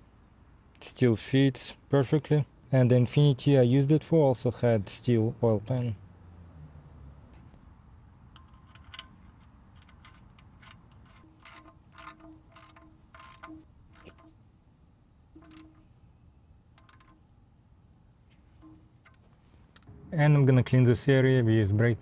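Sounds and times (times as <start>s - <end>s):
socket ratchet clicking: 8.3s - 14.4s, 15.4s - 15.9s, 16.7s - 17.2s.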